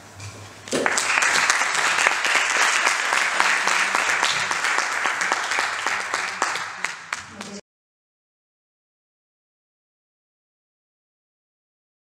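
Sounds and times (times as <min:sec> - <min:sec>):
audience applauding: 0:00.7 - 0:07.6.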